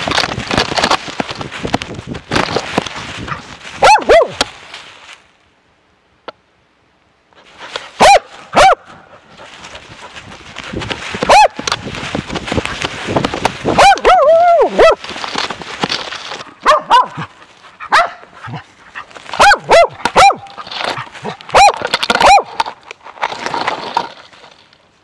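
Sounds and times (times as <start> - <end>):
dog movement rustle: 0.0 - 5.3, 9.2 - 24.7
loud sharp dog barks: 3.8 - 4.4, 8.0 - 8.9, 16.6 - 17.3, 17.9 - 18.3, 19.4 - 20.5, 21.5 - 22.5.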